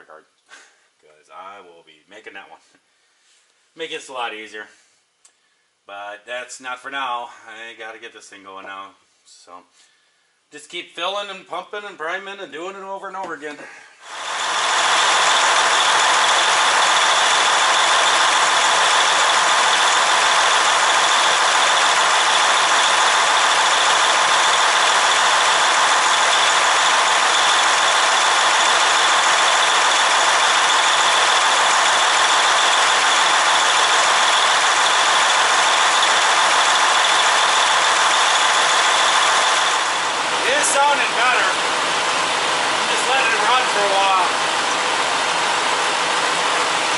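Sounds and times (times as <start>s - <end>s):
diesel engine idling: 14.0s - 46.9s.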